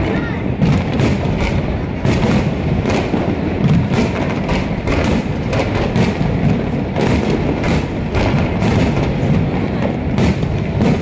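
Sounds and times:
continuous rumble: 0.0 - 11.0
fireworks bursting with sharp bangs: 0.0 - 11.0.

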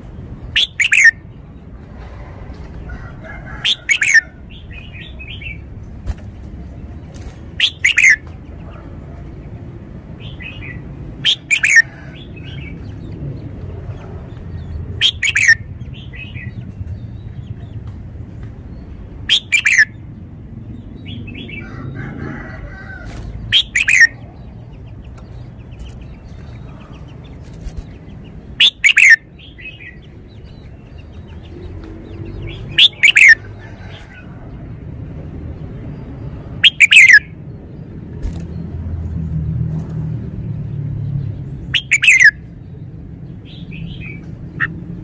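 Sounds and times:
bird whistled song phrases: 0.6 - 1.2, 7.6 - 8.2, 11.3 - 11.8, 15.0 - 15.6, 23.6 - 24.2, 28.6 - 29.2, 32.8 - 33.4, 36.6 - 37.2, 41.8 - 42.4
soft bird chirps: 14.4 - 20.0, 23.5 - 34.2, 41.7 - 42.5.

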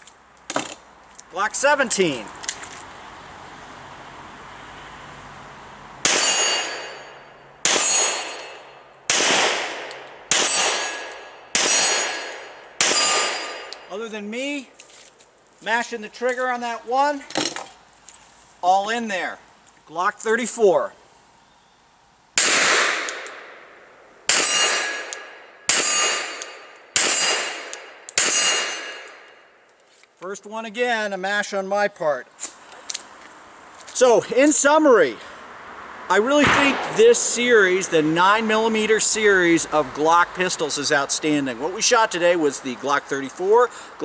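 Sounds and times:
pistol shots: 6.0 - 13.8, 22.4 - 23.6, 24.3 - 29.3, 36.4 - 37.4
steel plate target ringing: 6.1 - 8.8, 10.3 - 13.9, 24.3 - 29.3.

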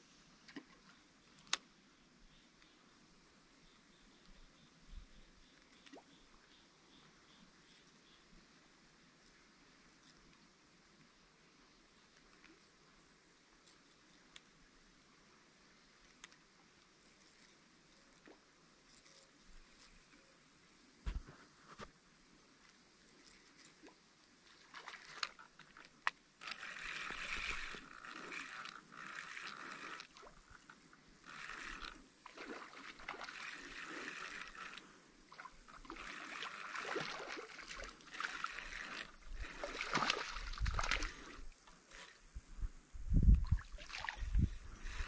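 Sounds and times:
fishing reel whirring: 25.0 - 45.0.

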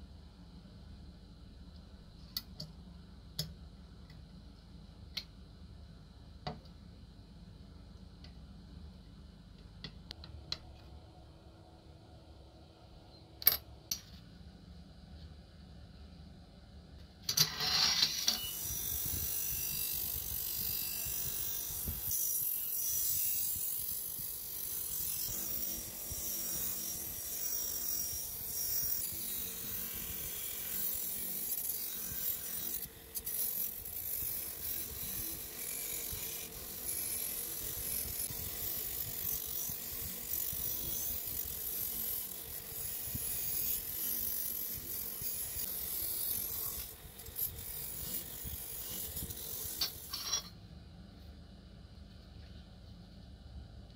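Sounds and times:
wire brush rasping on metal: 17.4 - 50.5.

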